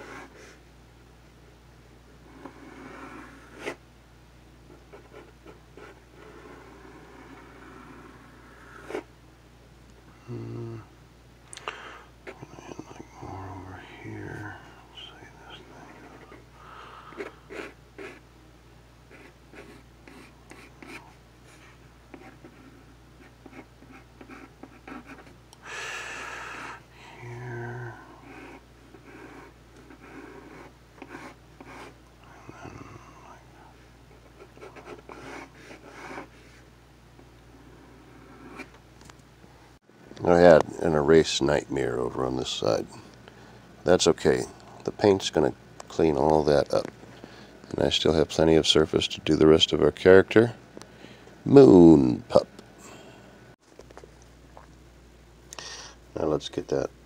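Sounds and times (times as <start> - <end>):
pencil sketching on paper: 0.0 - 0.6, 2.3 - 3.8, 4.9 - 9.1, 17.1 - 18.2, 19.1 - 25.3, 27.5 - 32.0, 34.2 - 36.6.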